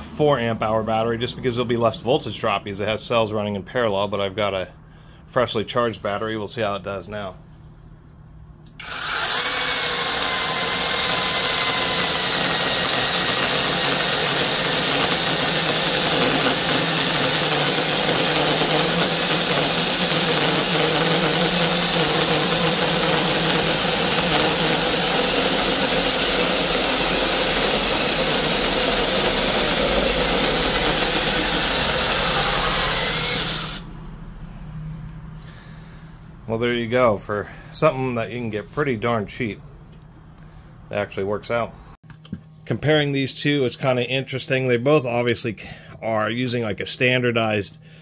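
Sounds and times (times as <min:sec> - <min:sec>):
mini chainsaw cutting wood: 0:08.7 - 0:33.9.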